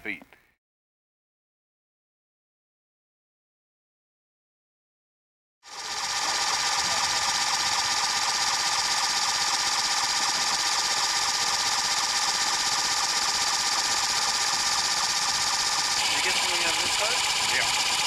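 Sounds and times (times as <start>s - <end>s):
small motor rattling and whining: 5.6s - 18.0s.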